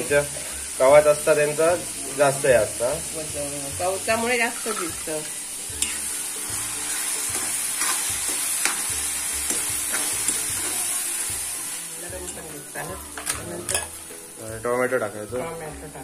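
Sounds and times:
onions sizzling in oil: 0.0s - 16.0s
spatula scraping a pan: 4.5s - 11.0s.

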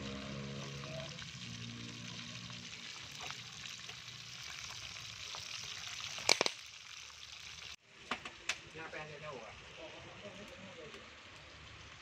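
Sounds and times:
oil popping: 0.0s - 8.6s
fish sizzling in hot oil: 0.0s - 9.0s.

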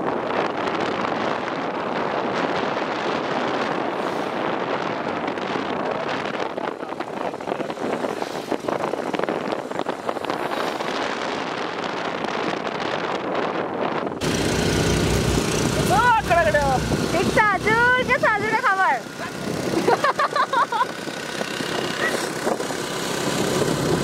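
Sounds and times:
road noise: 0.0s - 24.0s
wind rushing over microphone: 0.0s - 24.0s
low engine hum: 14.2s - 24.0s.

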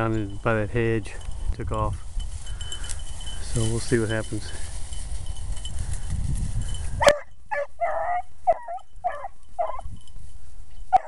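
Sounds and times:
hounds baying and yelping: 6.8s - 10.0s.

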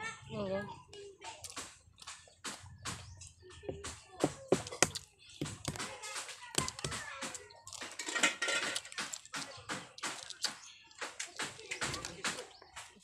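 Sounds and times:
close eating sounds: 0.7s - 13.0s
eggshell cracking clicks: 8.6s - 12.4s.

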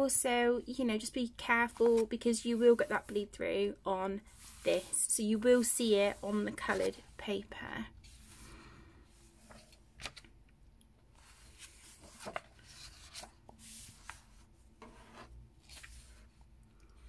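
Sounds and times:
paper rustling: 1.6s - 3.2s, 4.3s - 7.2s, 11.2s - 16.4s.

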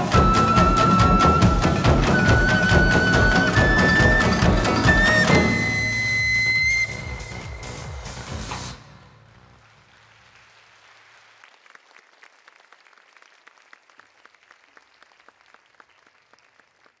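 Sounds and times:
audience applause: 0.0s - 5.7s, 9.3s - 17.0s.

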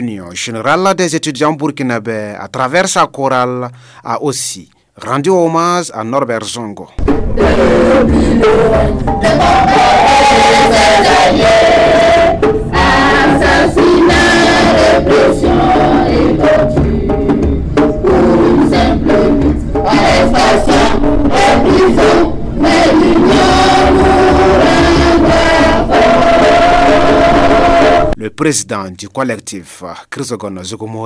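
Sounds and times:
choir singing: 7.0s - 28.2s.

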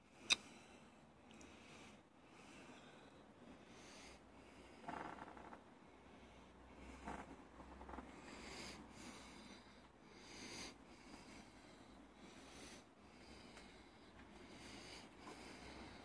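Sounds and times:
faint breathing: 0.0s - 16.0s.

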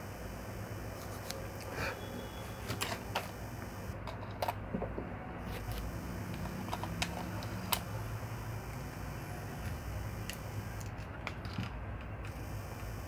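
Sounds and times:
steady low hum: 0.0s - 4.0s, 5.4s - 11.0s, 12.3s - 13.0s.

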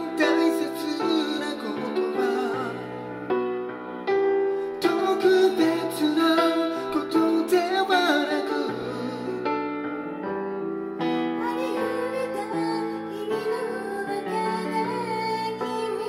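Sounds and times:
person singing: 0.0s - 3.2s, 4.6s - 9.7s, 11.1s - 16.0s
soft piano accompaniment: 0.0s - 16.0s.

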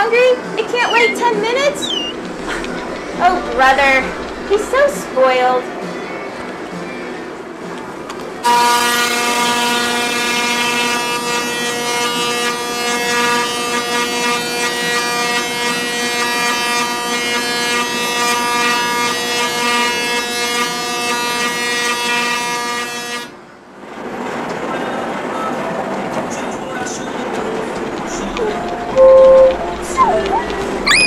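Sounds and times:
spark crackle: 2.1s - 5.7s.

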